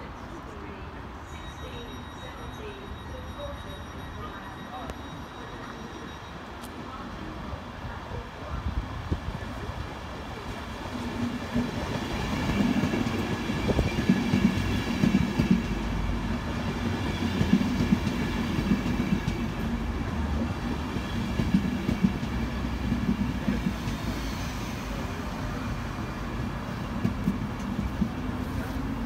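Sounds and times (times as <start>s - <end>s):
train rumble and hum: 0.0s - 29.0s.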